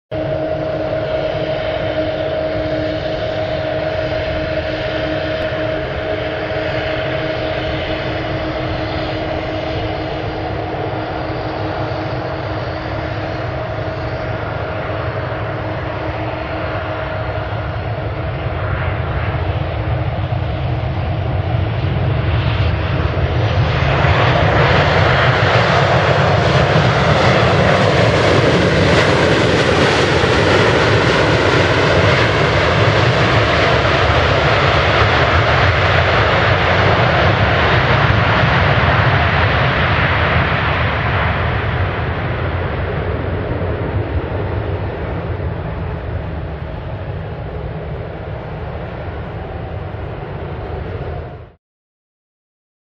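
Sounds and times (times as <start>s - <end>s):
jet engines whining: 0.1s - 51.6s.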